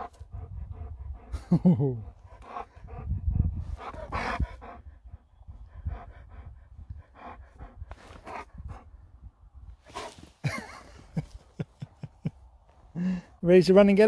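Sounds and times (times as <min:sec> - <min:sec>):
dog panting: 0:00.0 - 0:09.0.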